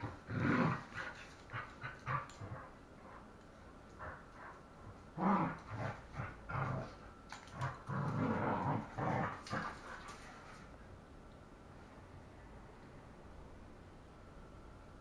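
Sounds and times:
dogs growling: 0:00.0 - 0:10.6.

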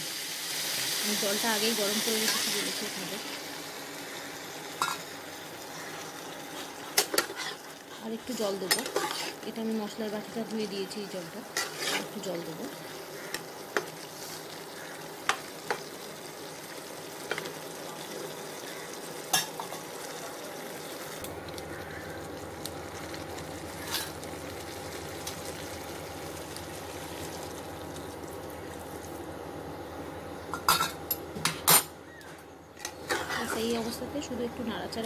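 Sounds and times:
food sizzling in a pan: 0:00.0 - 0:29.7, 0:32.8 - 0:35.0
spoon scraping a pan: 0:06.6 - 0:07.7, 0:08.7 - 0:09.5, 0:11.6 - 0:12.2, 0:32.8 - 0:33.8.

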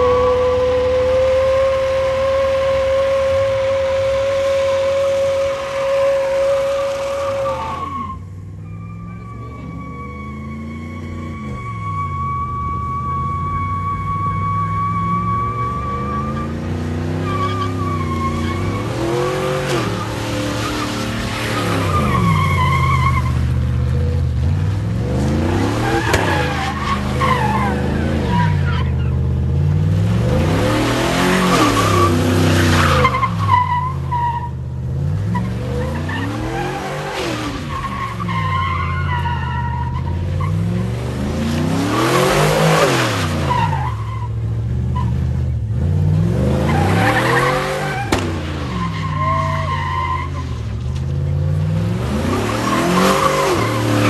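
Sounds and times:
car engine revving: 0:00.0 - 0:54.0
tyres squealing: 0:02.0 - 0:23.4, 0:25.6 - 0:29.3, 0:35.2 - 0:40.8, 0:46.6 - 0:50.7.

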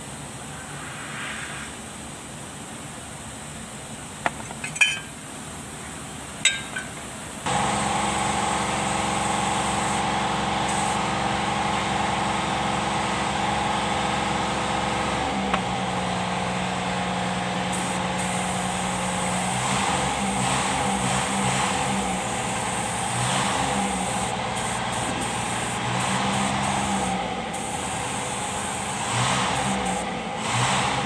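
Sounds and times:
metal tube clinks: 0:04.3 - 0:05.2, 0:06.4 - 0:07.0
engine running: 0:06.4 - 0:31.0.

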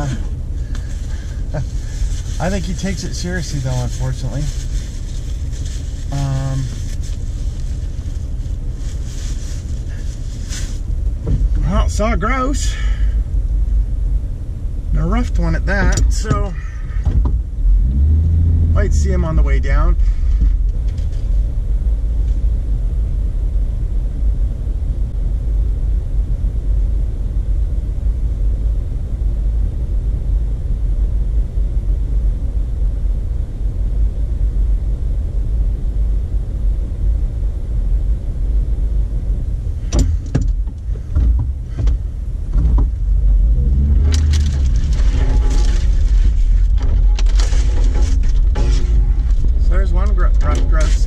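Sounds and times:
car engine idling: 0:00.0 - 0:51.0
sharp knocks: 0:39.9 - 0:43.0.

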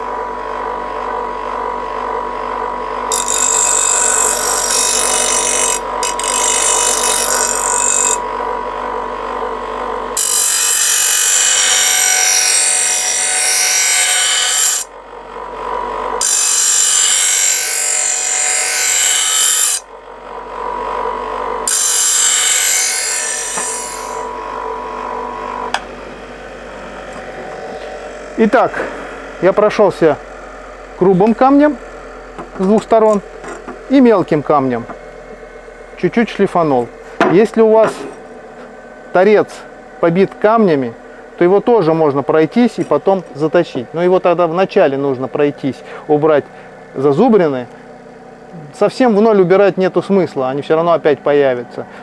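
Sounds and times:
bench grinder whining: 0:00.0 - 0:52.0
metal grinding against stone: 0:03.1 - 0:08.2.

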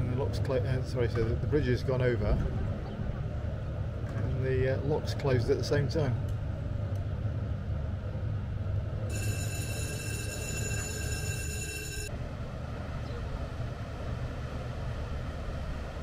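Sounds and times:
steady low rumble: 0:00.0 - 0:16.0
high electric warning signal: 0:09.1 - 0:12.1.

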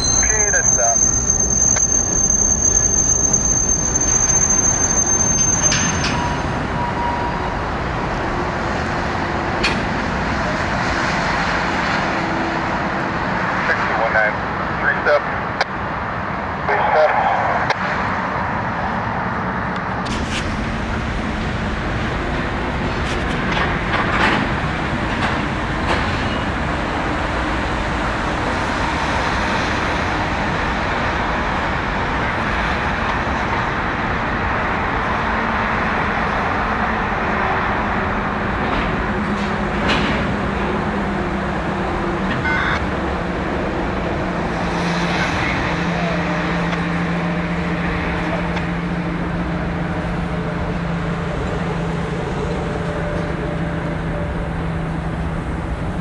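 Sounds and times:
brief squeal: 0:00.0 - 0:07.5
diesel locomotive drone: 0:00.0 - 0:56.0
freight cars rumbling: 0:00.0 - 0:56.0
train knocks: 0:20.1 - 0:27.7, 0:37.6 - 0:45.2.

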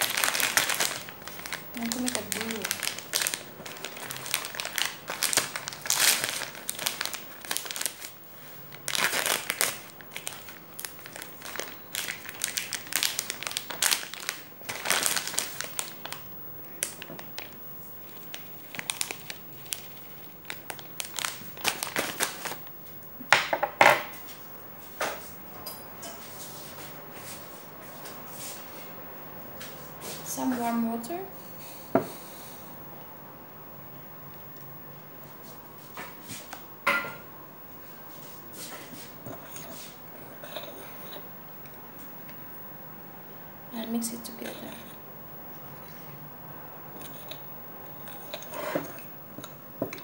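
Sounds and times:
plastic package crinkling: 0:00.0 - 0:22.7.

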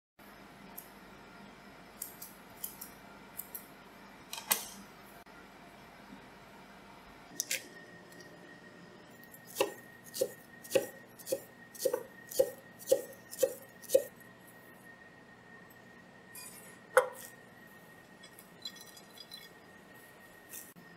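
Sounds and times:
knife chopping on wooden board: 0:09.5 - 0:14.1, 0:17.0 - 0:17.2.

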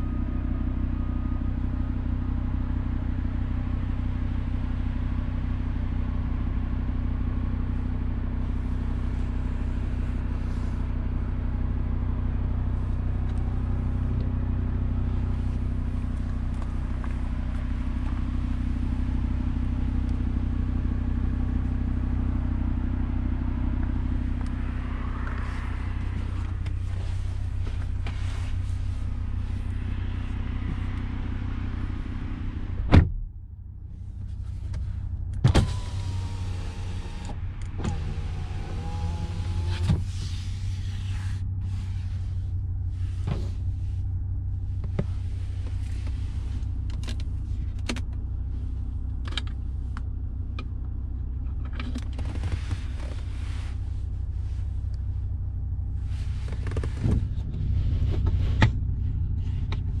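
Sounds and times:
car engine idling: 0:00.0 - 1:00.0
car door shutting: 0:32.8 - 0:33.2, 0:35.4 - 0:40.3, 0:43.2 - 0:43.6, 0:56.4 - 0:58.8
power window motor whining: 0:35.4 - 0:41.3.

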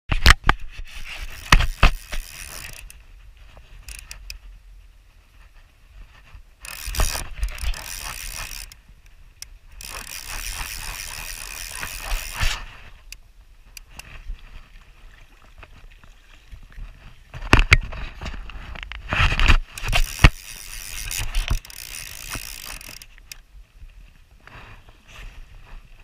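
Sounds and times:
fishing reel ratchet clicking: 0:01.0 - 0:03.0, 0:03.8 - 0:04.4, 0:06.6 - 0:08.8, 0:09.4 - 0:13.2, 0:19.6 - 0:23.4.

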